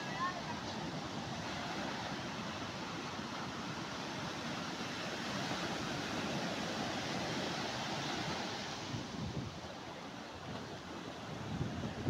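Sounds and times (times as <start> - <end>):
surf waves breaking: 0.0 - 12.0.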